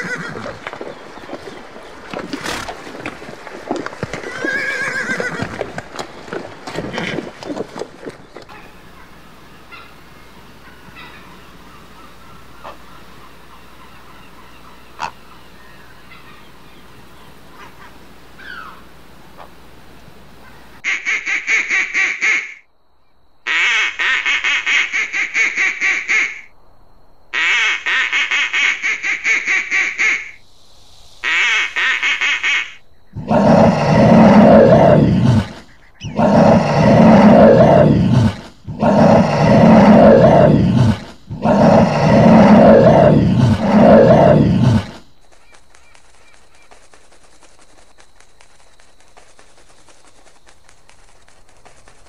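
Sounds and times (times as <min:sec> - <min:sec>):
loud rough animal calls: 0:00.0 - 0:13.1, 0:31.2 - 0:45.1.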